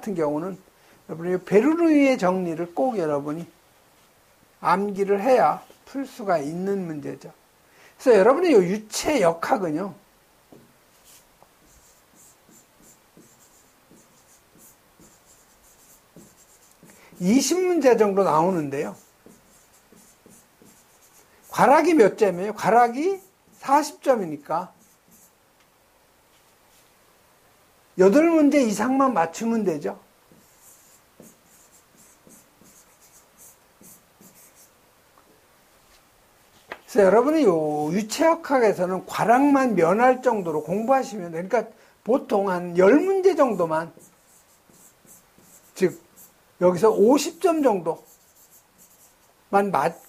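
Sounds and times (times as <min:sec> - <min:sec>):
pen strokes on whiteboard screen: 0:10.5 - 0:25.4, 0:26.3 - 0:26.9, 0:30.3 - 0:34.8, 0:42.9 - 0:50.0.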